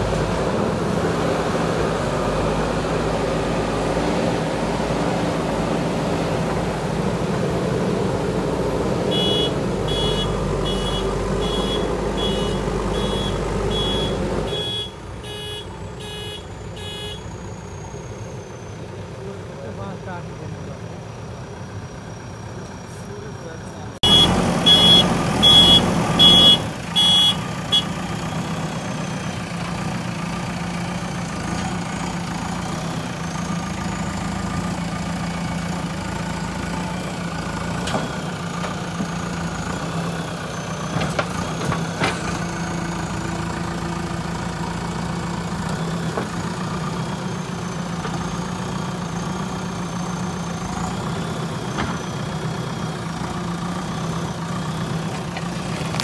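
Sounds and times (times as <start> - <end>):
diesel engine running: 0.0 - 56.0
reversing alarm beeping: 9.1 - 17.3, 24.0 - 27.4.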